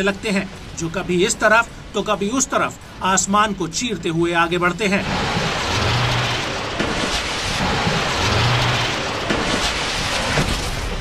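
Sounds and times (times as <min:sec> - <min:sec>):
rocket motors roaring: 0:04.7 - 0:11.0.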